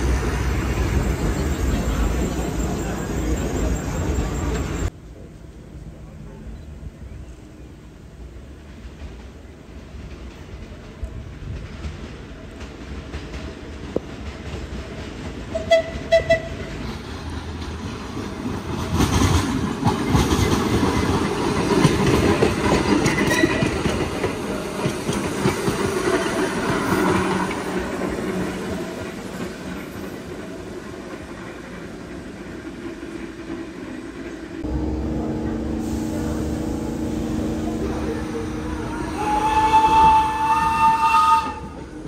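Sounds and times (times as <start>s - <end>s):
train wheels clattering on track: 8.5s - 34.7s
train horn toots: 15.5s - 16.7s.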